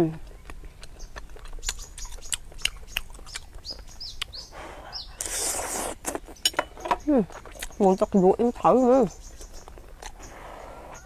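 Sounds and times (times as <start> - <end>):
bird chirping: 0.0 - 11.0
chewing squid close up: 0.2 - 8.2, 9.2 - 11.0
wet mouth clicks: 0.4 - 4.4, 5.2 - 7.8, 9.4 - 10.3.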